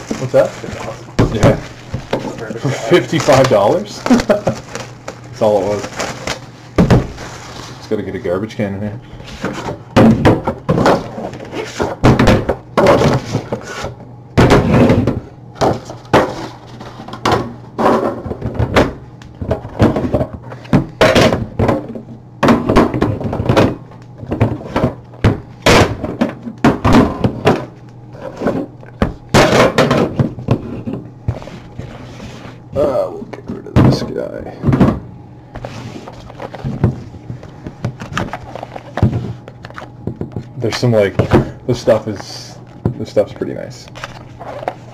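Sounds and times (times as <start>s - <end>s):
cardboard boxes scraping: 7.1s - 7.8s, 30.6s - 32.6s, 35.6s - 37.2s
boxes set down with thunks: 28.6s - 30.7s.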